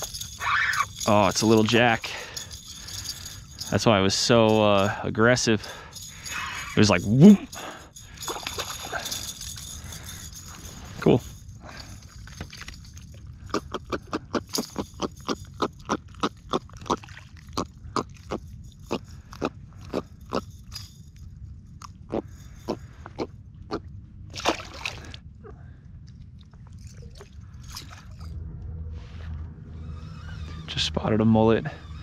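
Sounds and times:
fish grunting croaks: 13.4s - 20.5s.

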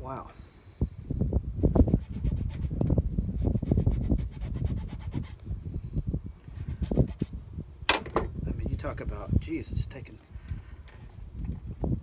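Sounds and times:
handling noise: 7.9s - 8.4s.

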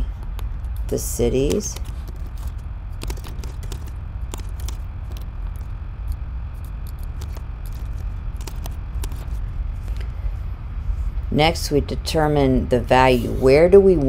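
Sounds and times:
steady low hum: 0.0s - 14.0s
computer keyboard typing: 1.1s - 5.7s, 6.6s - 9.4s.

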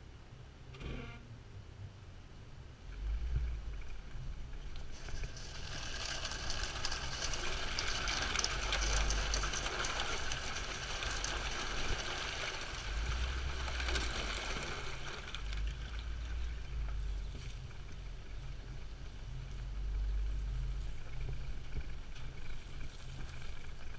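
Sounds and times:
steady low rumble: 0.0s - 23.9s
tyres splashing through creek water: 4.9s - 17.3s.

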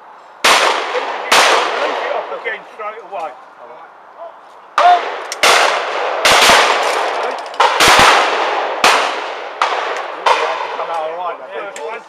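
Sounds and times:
shotgun shots: 0.4s - 2.4s, 4.8s - 10.9s.

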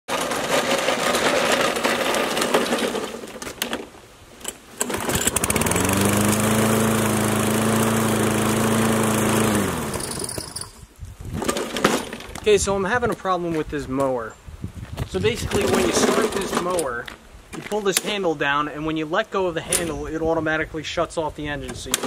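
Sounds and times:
lawn mower engine running: 0.1s - 3.4s, 4.4s - 12.2s, 15.5s - 16.8s
mower pull-start: 0.1s - 12.4s, 15.5s - 17.0s, 21.7s - 22.0s.

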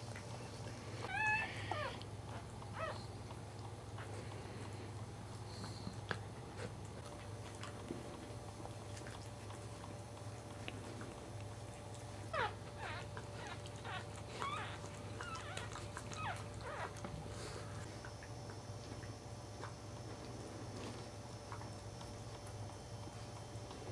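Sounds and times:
steady low hum: 0.0s - 23.9s
puppies squeaking and whimpering: 1.0s - 3.0s, 12.3s - 17.6s.

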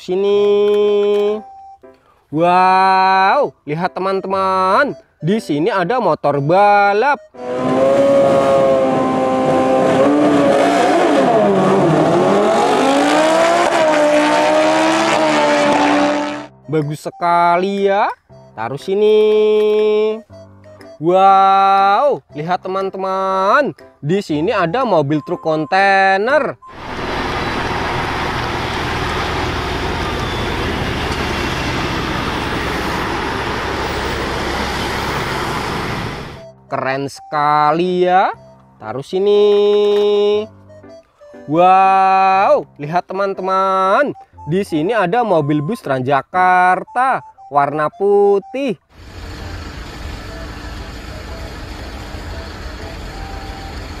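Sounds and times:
motorcycle engines revving: 7.4s - 16.5s, 26.7s - 36.5s
truck driving past: 26.6s - 36.6s, 48.9s - 54.0s.

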